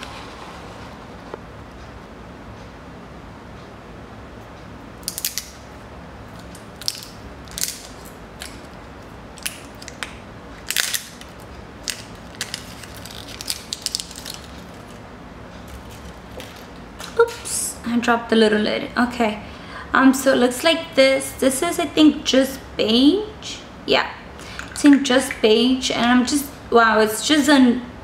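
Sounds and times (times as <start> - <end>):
plastic seal crinkling: 9.4 - 15.0.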